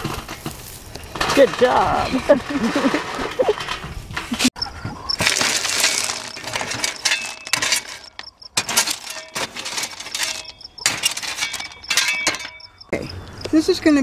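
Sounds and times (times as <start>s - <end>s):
shovel scraping in metal tank: 0.0s - 4.5s, 5.2s - 12.6s
stones clattering: 5.1s - 12.8s.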